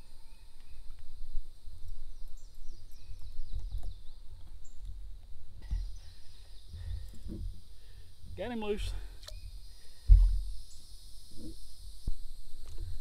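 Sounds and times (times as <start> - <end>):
birds chirping: 1.8 - 11.9.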